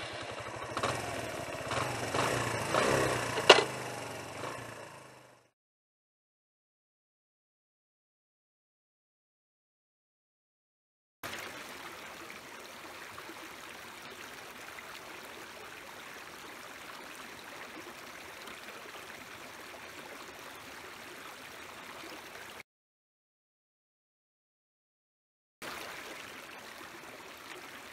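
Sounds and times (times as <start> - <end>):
stream running over stones: 0.0 - 5.2, 11.2 - 22.6, 25.6 - 27.9.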